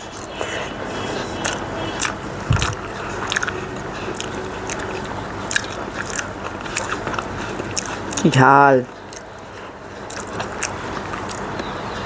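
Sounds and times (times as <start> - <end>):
person chewing with mouth clicks: 0.0 - 8.4, 9.0 - 11.8.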